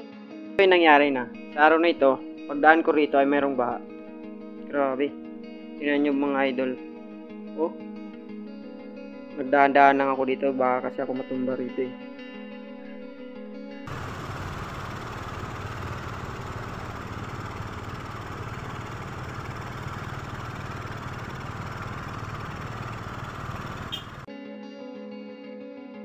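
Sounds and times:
guitar music: 11.1s - 13.8s
motorcycle engine rumble: 13.9s - 24.3s.

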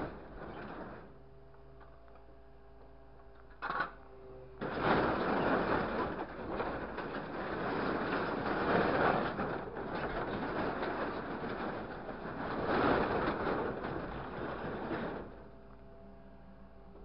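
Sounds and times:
metal sheets rattling and scraping: 0.0s - 1.1s, 4.6s - 15.5s.

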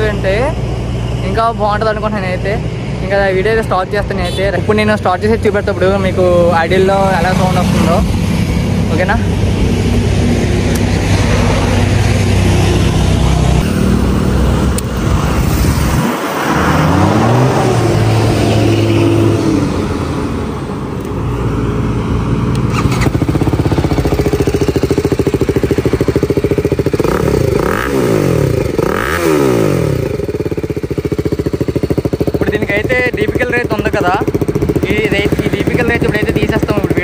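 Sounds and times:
motorcycle engine revving: 0.0s - 37.0s
motorcycle engine idling: 22.6s - 37.0s.

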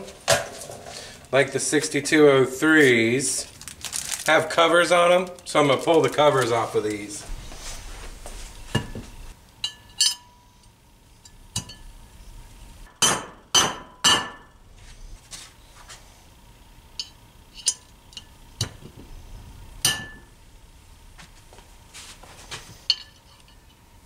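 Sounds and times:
hammer striking metal: 12.9s - 14.5s, 19.8s - 20.3s.

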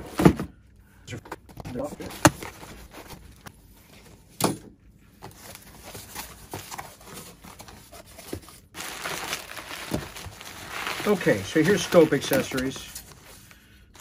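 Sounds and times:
bubble wrap crinkling: 5.4s - 14.0s.

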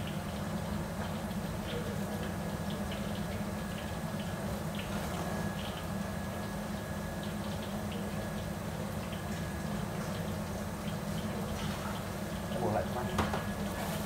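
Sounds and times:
kitchen machinery hum: 0.0s - 14.0s.

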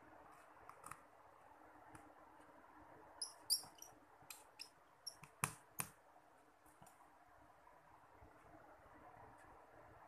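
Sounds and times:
screwdriver squeaks and clicks: 3.2s - 5.3s.

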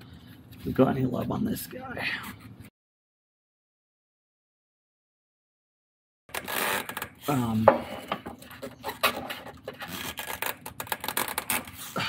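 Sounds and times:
strap wrench creaking and scraping: 6.3s - 12.0s.

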